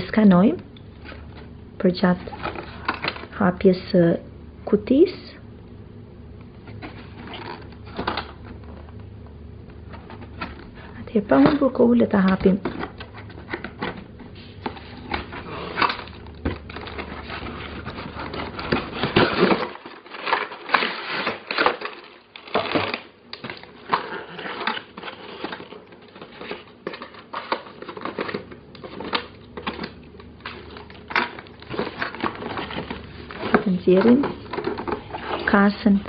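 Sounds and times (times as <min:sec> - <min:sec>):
toy packaging crinkling: 0:15.0 - 0:36.0.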